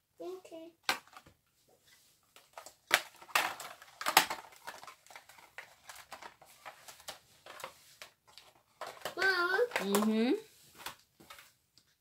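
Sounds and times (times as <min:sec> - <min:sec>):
plastic tubes scraping: 0:01.9 - 0:11.5
plastic clicks: 0:02.4 - 0:10.2.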